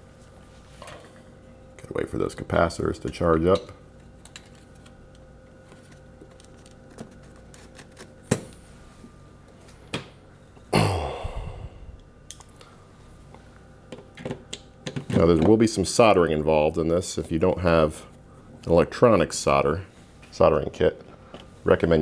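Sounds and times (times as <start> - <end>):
person sighing: 10.7 - 12.0.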